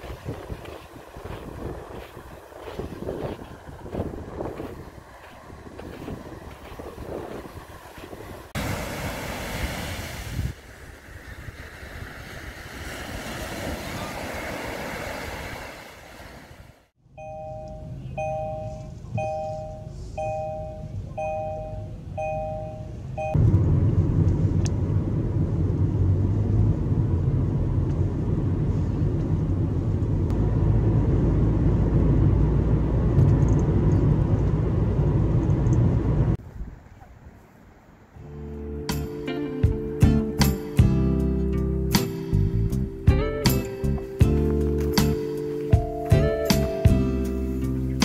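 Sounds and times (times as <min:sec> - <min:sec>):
road and engine noise in car: 0:00.0 - 0:09.5, 0:16.1 - 0:36.4, 0:39.7 - 0:48.0
waves washing onto beach: 0:00.0 - 0:16.9
wind: 0:00.0 - 0:48.0
car two-note warning chime: 0:17.1 - 0:23.4, 0:45.0 - 0:47.4.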